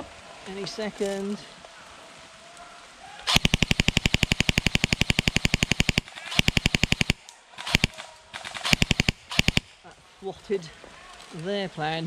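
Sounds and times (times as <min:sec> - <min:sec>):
airsoft gun rapid fire: 0:03.3 - 0:09.8.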